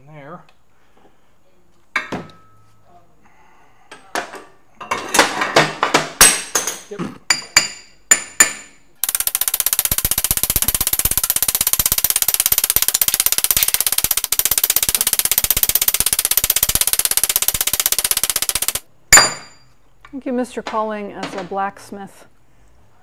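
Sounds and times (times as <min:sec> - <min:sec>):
mallet striking steel tube: 0:19.1 - 0:19.6.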